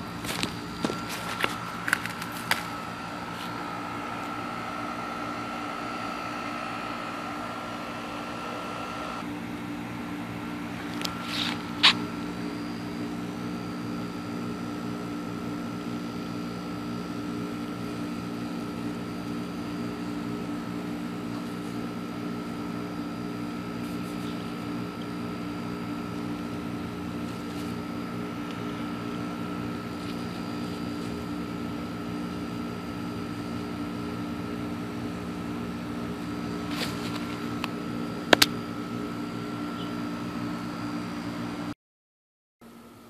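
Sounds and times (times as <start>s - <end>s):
mechanical hum: 0.0s - 41.8s, 42.6s - 43.0s.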